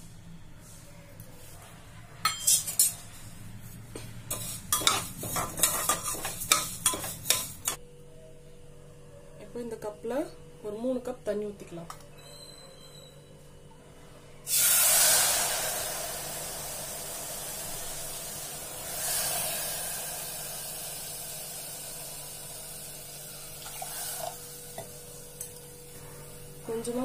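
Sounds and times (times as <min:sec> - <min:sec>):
sizzling and bubbling: 0:02.2 - 0:07.8, 0:14.4 - 0:27.0
water pouring into hot pan: 0:14.5 - 0:24.8.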